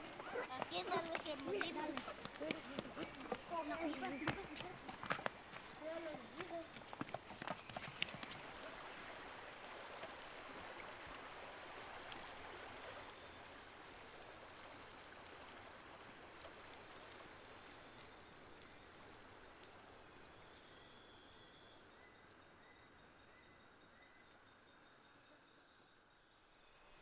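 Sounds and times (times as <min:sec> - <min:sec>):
running water: 0:00.0 - 0:20.3
short repeated insect chirp: 0:12.9 - 0:27.0
high-pitched insect drone: 0:26.0 - 0:27.0.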